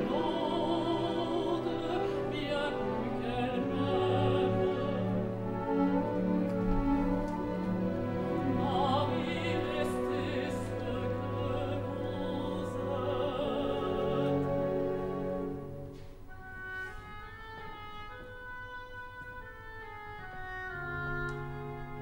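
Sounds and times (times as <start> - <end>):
woman opera singing: 0.0 - 5.2, 8.3 - 15.2
orchestral strings: 0.0 - 22.0.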